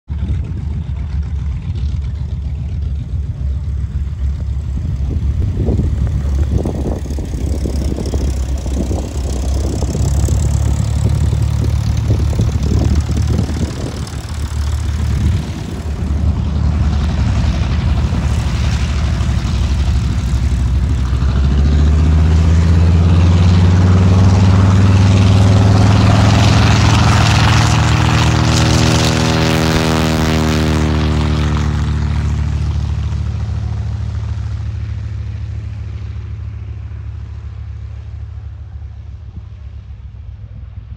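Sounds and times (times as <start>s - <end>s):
propeller plane engine drone: 0.1s - 40.9s.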